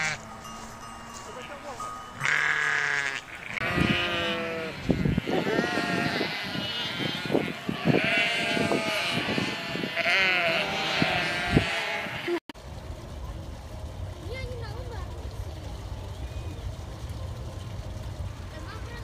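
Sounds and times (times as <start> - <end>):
sheep bleating: 0.0 - 0.2, 2.2 - 12.4.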